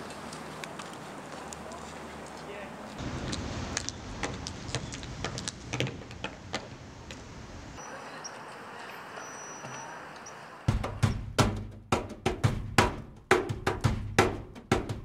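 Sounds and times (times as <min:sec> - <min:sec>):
faint background noise: 0:00.0 - 0:11.2
hard-soled footsteps on pavement: 0:00.0 - 0:11.6.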